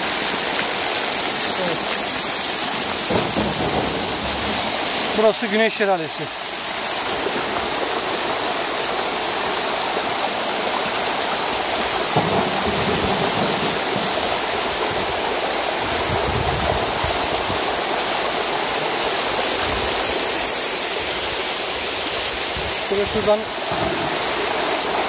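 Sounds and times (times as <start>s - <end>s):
waterfall rushing and splashing: 0.0s - 25.0s
low rumbles: 2.9s - 5.4s.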